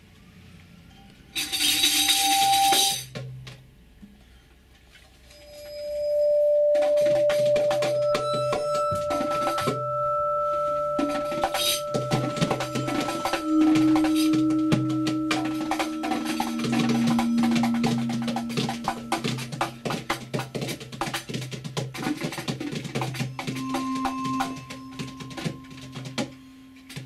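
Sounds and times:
rattling hand percussion: 1.3s - 3.6s, 5.3s - 27.0s
higher held tone: 5.3s - 20.9s, 23.3s - 27.0s
bowed vibraphone tone: 5.3s - 21.5s, 23.2s - 27.0s.

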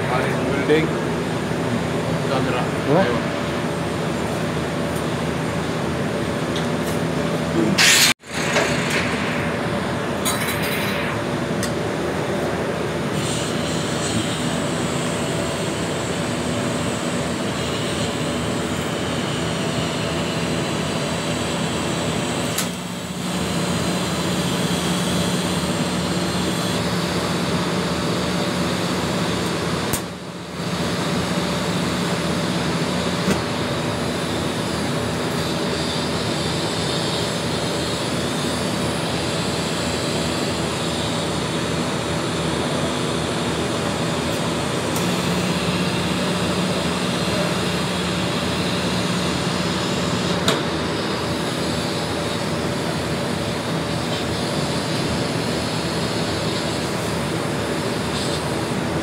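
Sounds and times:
welding machine low hum: 3.4s - 59.0s
welding arc hissing: 7.8s - 18.4s.

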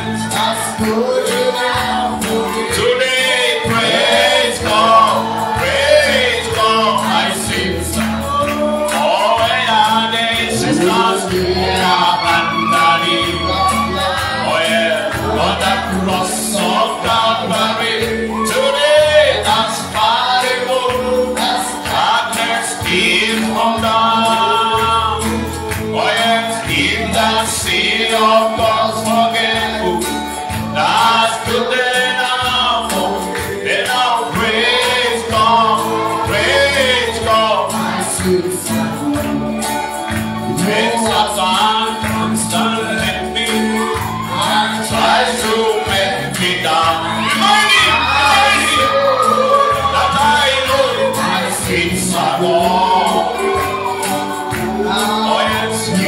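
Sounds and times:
bass line: 0.0s - 56.0s
group singing gospel song: 0.0s - 56.0s.

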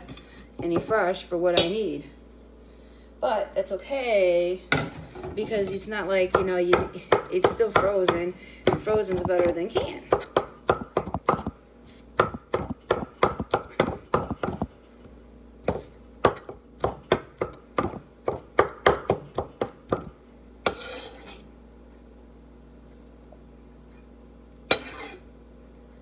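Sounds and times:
knife chopping on wooden board: 6.3s - 11.6s, 12.2s - 14.7s, 15.7s - 20.1s
knife scraping board: 20.6s - 21.5s, 24.7s - 25.3s.

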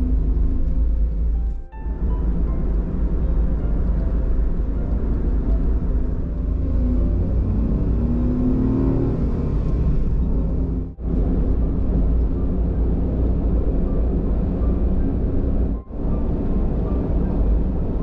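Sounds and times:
tyre road noise: 0.0s - 18.0s
van engine droning: 0.0s - 18.0s.

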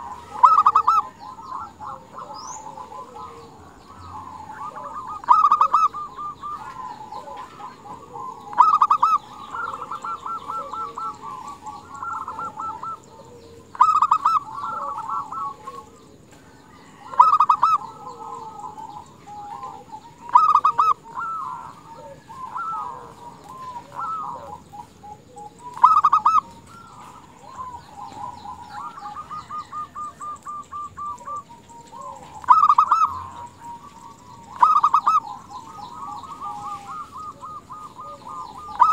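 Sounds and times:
dove cooing: 0.0s - 38.9s
soft dove trills: 0.0s - 38.9s.

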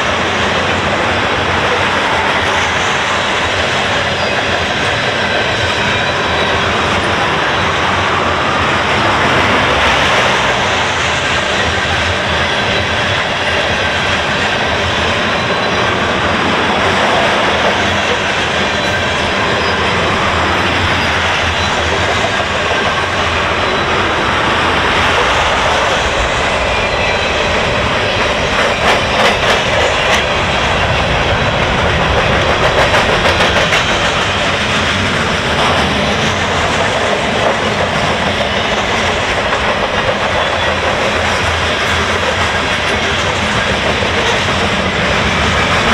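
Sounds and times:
freight train wheels rumbling on rail: 0.0s - 45.9s.

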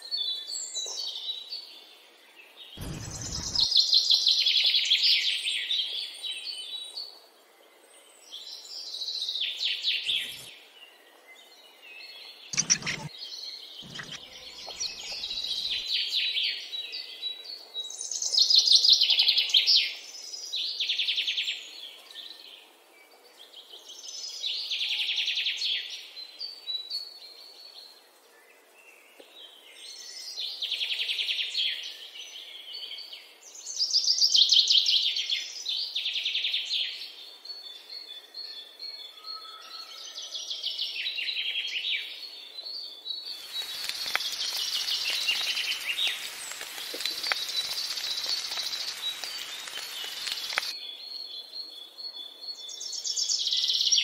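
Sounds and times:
low thumps: 2.8s - 3.7s
songbirds chirping trills: 12.3s - 15.8s, 42.5s - 52.4s.

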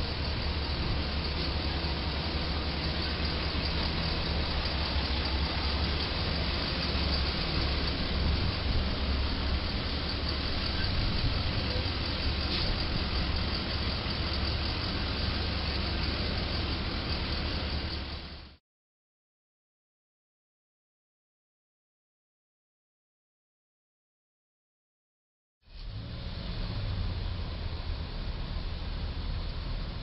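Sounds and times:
constant hiss: 0.0s - 18.5s
diesel engine idling: 0.0s - 18.6s.

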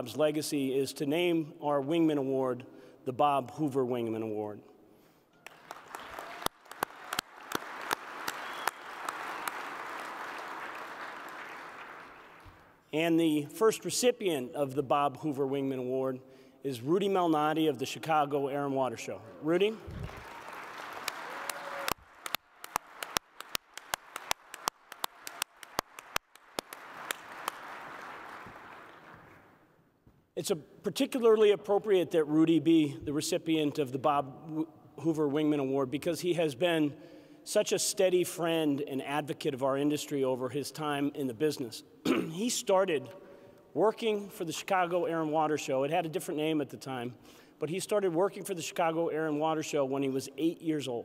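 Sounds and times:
audience applauding: 5.4s - 12.7s, 19.9s - 29.6s
one person clapping sharply: 5.4s - 12.7s, 19.9s - 29.4s.

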